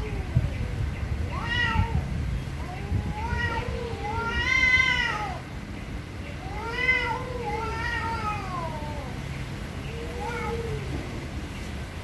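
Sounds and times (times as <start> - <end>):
cats yowling: 1.3 - 2.0, 2.6 - 5.4, 6.4 - 9.2, 9.9 - 11.1.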